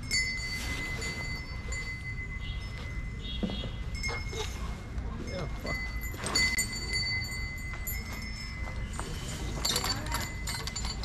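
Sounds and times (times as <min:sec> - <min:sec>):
light metallic clinking: 0:05.3 - 0:11.0.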